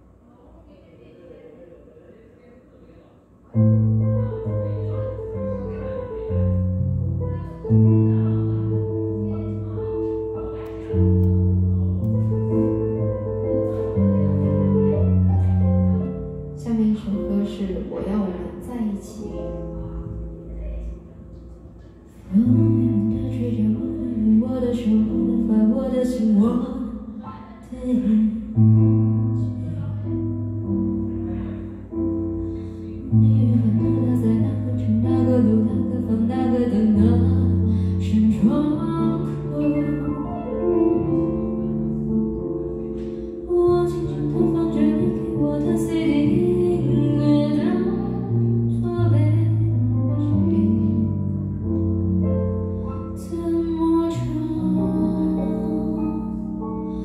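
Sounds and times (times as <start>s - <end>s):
keyboard chords and bass notes: 6.4s - 16.6s
woman singing into microphone: 22.3s - 28.9s, 33.0s - 40.5s, 43.4s - 51.3s, 53.2s - 57.0s.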